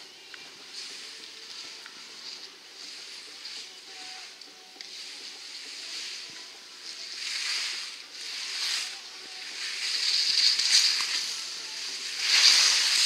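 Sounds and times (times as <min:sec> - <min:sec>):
skis scraping over snow: 0:04.9 - 0:13.0.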